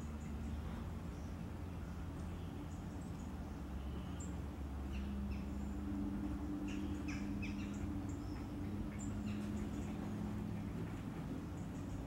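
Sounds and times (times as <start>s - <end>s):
small birds chirping: 0.0s - 12.0s
steady low hum: 0.0s - 12.0s.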